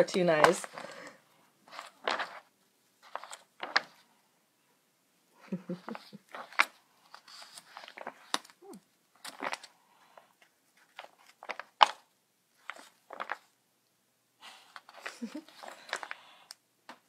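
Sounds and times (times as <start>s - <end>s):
book pages turning: 0.0s - 4.1s, 5.9s - 13.6s, 14.7s - 16.2s.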